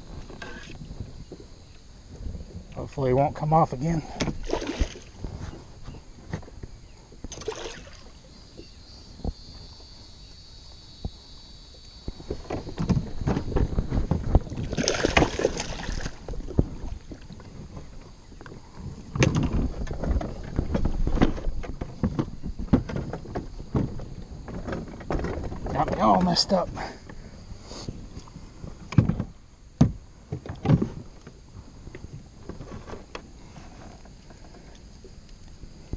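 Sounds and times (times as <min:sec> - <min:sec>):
thin high whine: 0:00.0 - 0:04.0, 0:04.8 - 0:18.4
fish splashing in water: 0:04.4 - 0:05.2, 0:07.3 - 0:08.2, 0:14.6 - 0:17.3
knocks against boat hull: 0:28.9 - 0:30.9.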